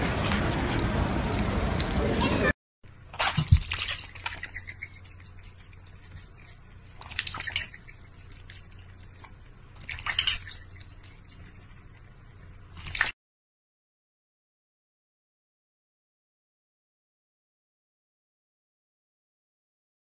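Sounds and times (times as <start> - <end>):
faint low hum: 0.0 - 13.1
water splashing in metal bowl: 3.2 - 5.7, 7.0 - 8.9, 9.8 - 11.4, 12.8 - 13.2.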